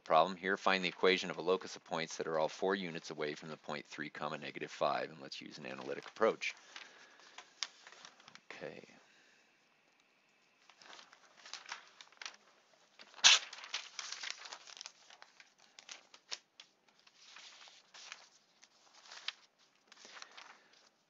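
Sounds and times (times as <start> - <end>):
paper rustling and crinkling: 4.8 - 8.6, 10.5 - 21.0
paper slap: 13.0 - 14.5.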